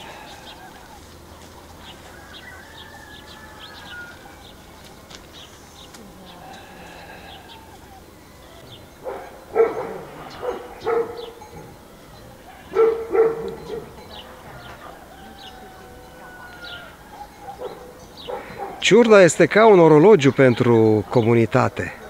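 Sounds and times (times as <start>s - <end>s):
small birds chirping: 0.0s - 22.0s
dog barking: 9.0s - 11.7s, 12.4s - 15.1s, 17.1s - 18.8s.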